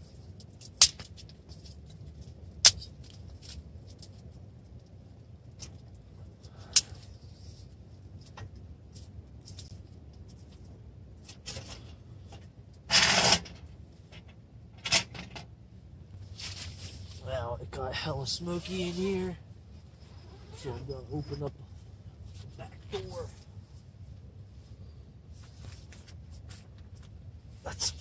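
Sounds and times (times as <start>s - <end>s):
light rubbing and scraping: 5.6s - 15.3s, 16.1s - 28.0s.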